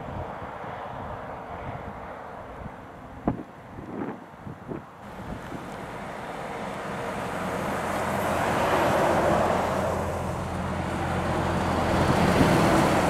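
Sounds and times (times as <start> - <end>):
road and tyre noise: 0.0 - 13.0
lorry diesel engine running: 5.0 - 13.0.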